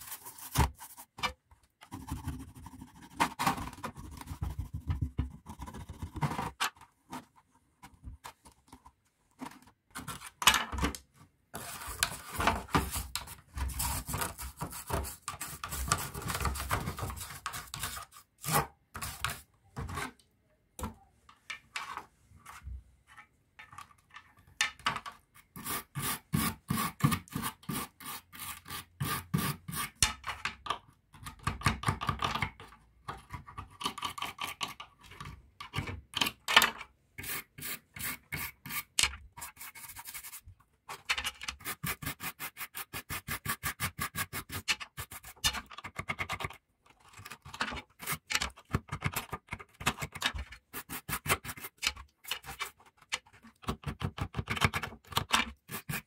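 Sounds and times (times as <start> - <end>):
wire brush scrubbing plastic: 55.5 - 56.0.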